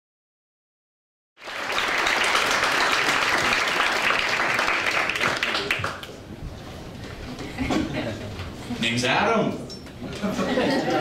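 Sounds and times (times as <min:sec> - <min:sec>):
audience applauding: 0:01.4 - 0:06.2.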